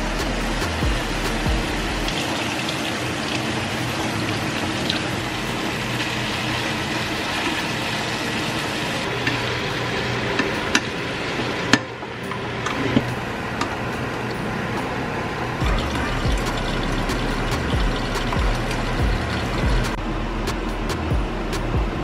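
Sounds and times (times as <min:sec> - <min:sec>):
tap water running into sink: 0:02.1 - 0:09.5, 0:15.6 - 0:19.9.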